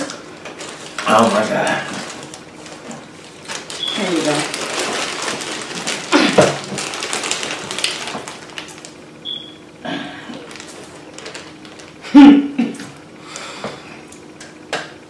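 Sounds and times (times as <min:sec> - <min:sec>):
plastic bag crinkling: 0:00.0 - 0:09.1, 0:10.3 - 0:12.1.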